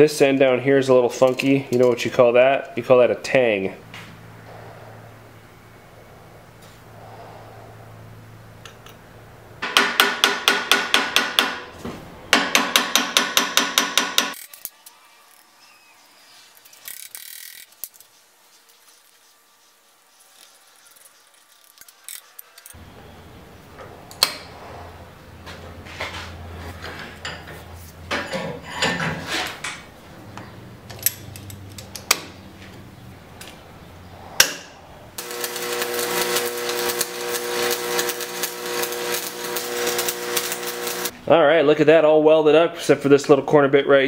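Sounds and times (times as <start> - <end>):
arc welding buzz and crackle: 14.0 - 22.8, 35.2 - 41.2.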